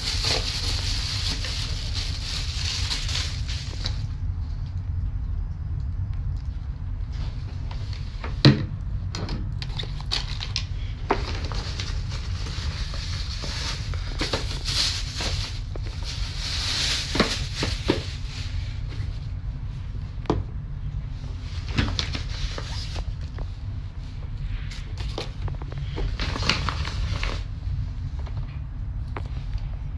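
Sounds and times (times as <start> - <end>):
plastic bag rustling: 0.0 - 4.2, 9.6 - 19.4, 21.3 - 28.4
steady low hum: 0.0 - 29.9.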